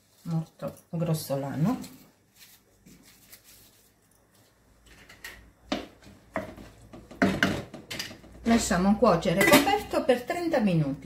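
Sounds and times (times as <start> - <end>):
utensil knocking on pan: 5.7 - 8.6.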